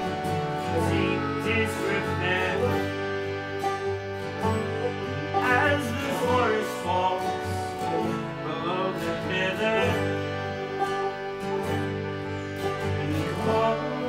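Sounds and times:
acoustic guitar: 0.0s - 14.0s
banjo: 0.0s - 14.0s
harmonium: 0.0s - 14.0s
man singing: 0.6s - 3.0s, 5.2s - 10.7s, 12.8s - 14.0s.

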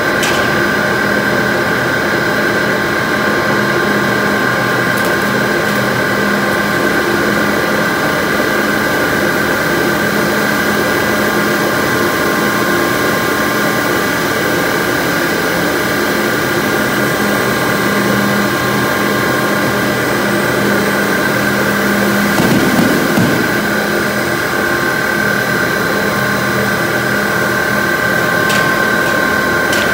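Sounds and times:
factory machinery drone: 0.0s - 29.9s
high whine: 21.4s - 29.9s.

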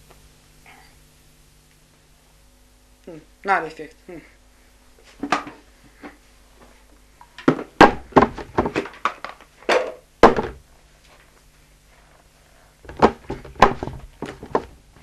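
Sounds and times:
plastic wastebasket thumping on table: 7.4s - 10.6s, 12.9s - 14.8s.

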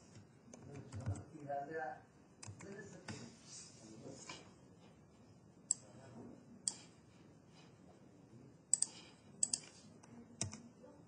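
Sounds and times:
computer mouse clicks: 2.4s - 2.8s, 6.6s - 6.9s, 8.7s - 10.7s.

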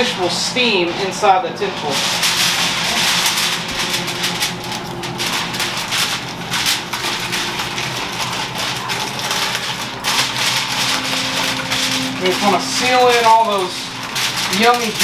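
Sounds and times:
aluminium foil crinkling: 0.0s - 15.0s.

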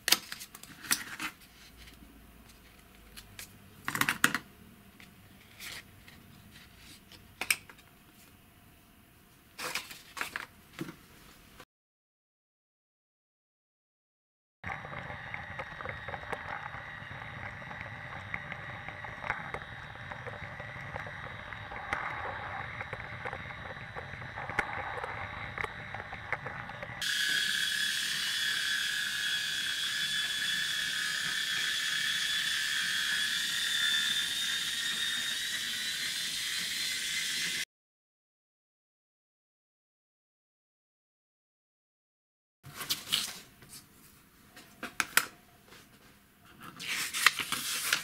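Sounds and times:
high whine: 14.6s - 36.1s
toy train motor whirring: 26.4s - 37.6s.

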